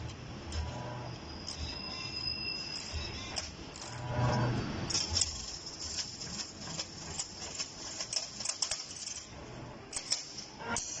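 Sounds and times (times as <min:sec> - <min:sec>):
wire bending machine clicking: 0:02.7 - 0:09.3, 0:09.9 - 0:11.0.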